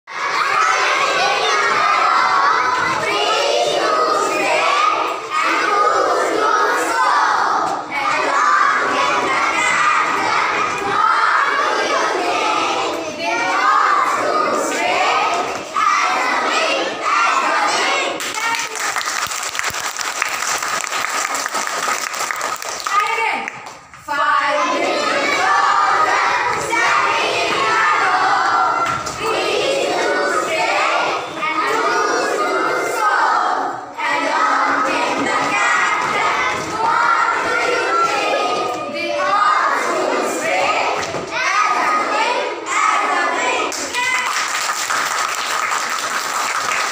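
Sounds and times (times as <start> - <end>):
children shouting and cheering: 0.1 - 46.9
young children shouting: 35.3 - 44.4.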